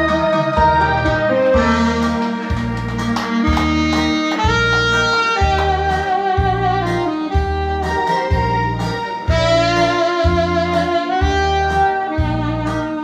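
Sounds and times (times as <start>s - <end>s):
instrumental backing track through pa: 0.0s - 13.0s.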